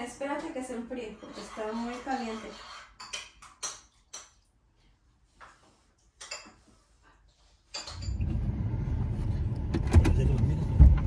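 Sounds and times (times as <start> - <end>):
car running inside cabin: 8.2 - 11.0.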